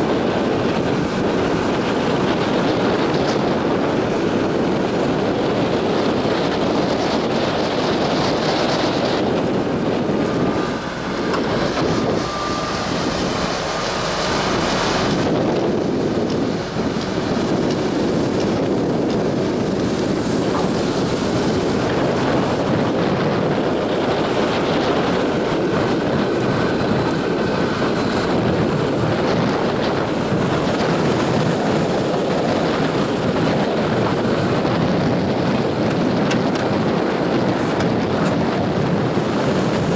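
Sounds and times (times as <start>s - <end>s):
diesel excavator engines running: 0.0s - 39.9s
wind buffeting microphone: 0.0s - 39.9s.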